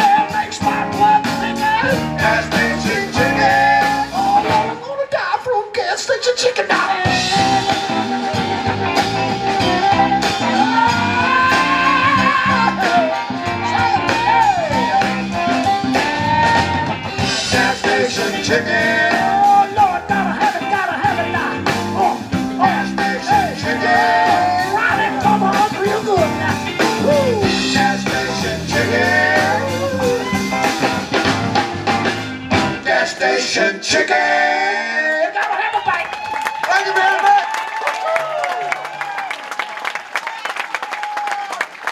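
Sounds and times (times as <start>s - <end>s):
live blues band playing: 0.0s - 4.8s, 6.2s - 34.7s.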